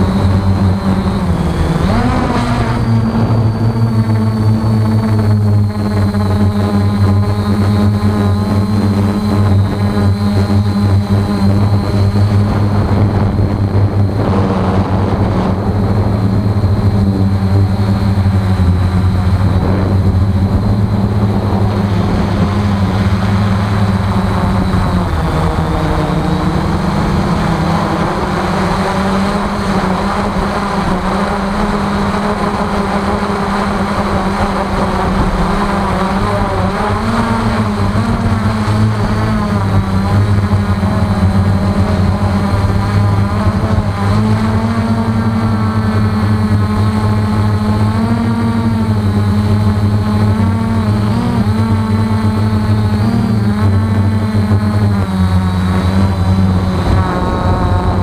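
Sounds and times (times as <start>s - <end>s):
electric motors and propellers humming: 0.0s - 58.0s.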